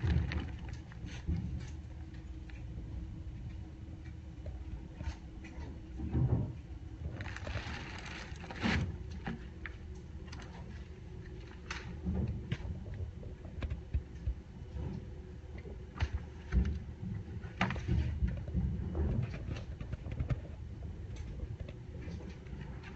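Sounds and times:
plastic and paper rustling: 0.0 - 1.8, 7.1 - 9.4.

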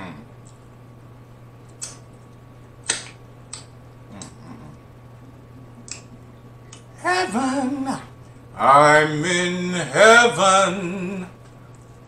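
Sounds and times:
lip smacks and finger-licking: 1.6 - 4.4, 5.8 - 6.9.

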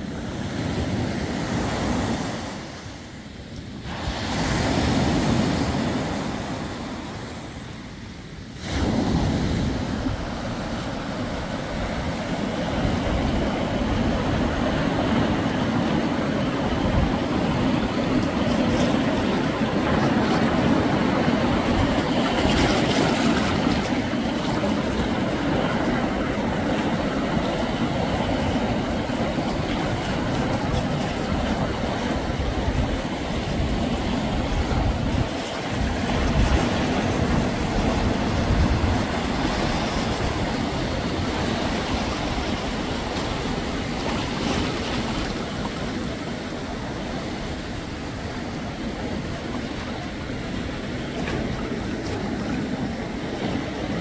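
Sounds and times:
waves breaking on pebbles: 8.6 - 46.5.

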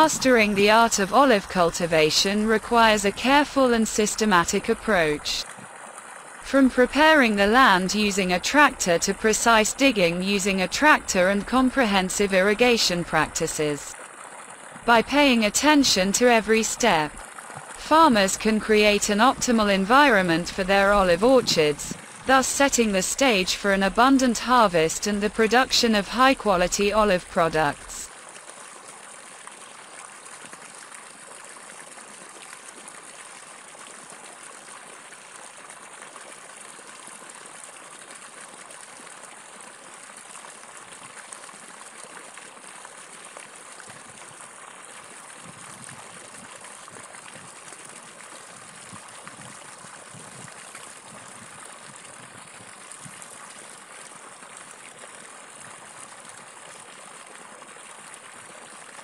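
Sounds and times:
water gushing from pipe: 0.0 - 6.5, 13.2 - 16.1, 17.0 - 19.8, 20.4 - 22.5, 28.0 - 59.0.

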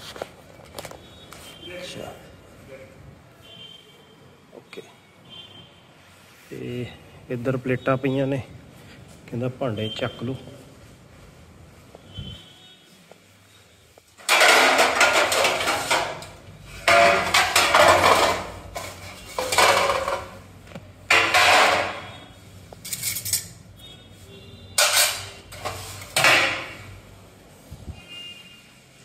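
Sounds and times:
steel plates clanking and scraping: 14.2 - 20.4, 21.1 - 22.2, 24.8 - 26.8.

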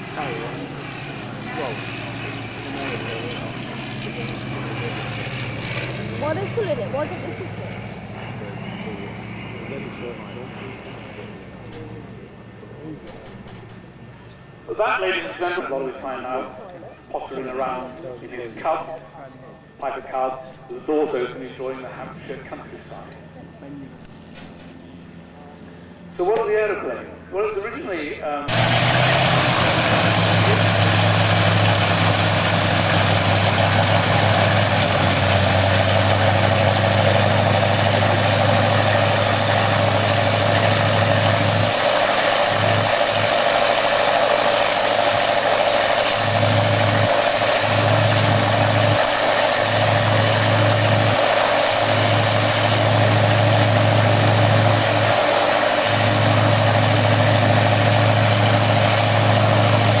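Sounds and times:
piston aero engine idling: 0.0 - 14.8, 28.5 - 60.0.

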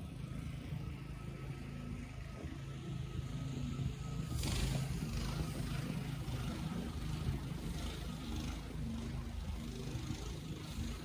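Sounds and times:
wind: 0.0 - 11.0.

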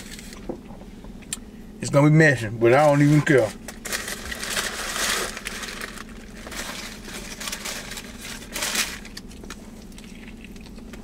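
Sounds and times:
paper wrapper crinkling: 2.9 - 10.6.

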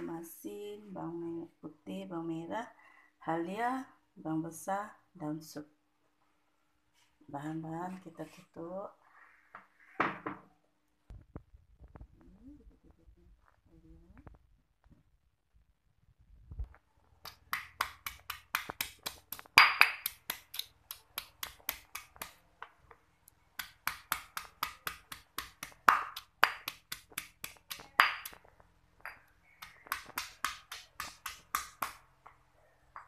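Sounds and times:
stone pestle pounding in mortar: 17.2 - 22.3, 23.6 - 28.4, 29.6 - 32.0.

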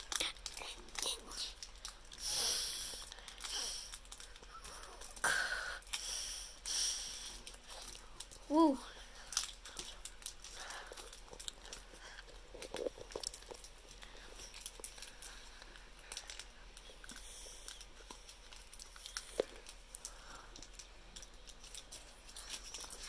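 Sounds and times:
foil wrapper crinkling and tearing: 0.0 - 23.0.

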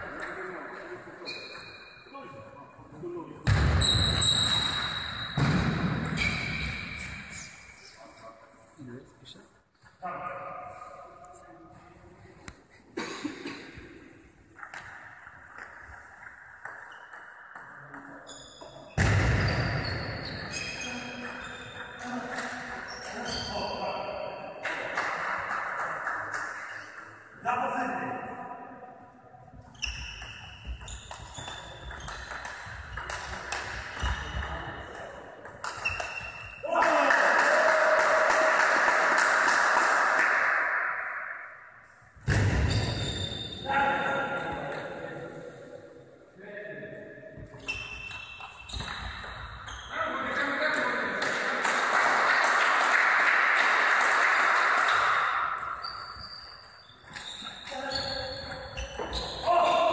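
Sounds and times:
spectators applauding: 36.8 - 40.4, 51.6 - 54.9.

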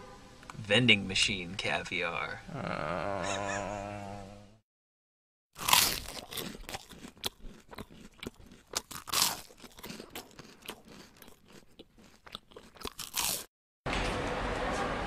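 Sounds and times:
crunching and chewing: 5.6 - 13.5.

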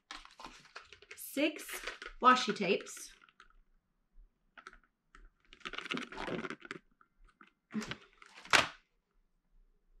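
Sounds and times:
items clicking and rattling: 0.0 - 3.6, 4.5 - 8.8.

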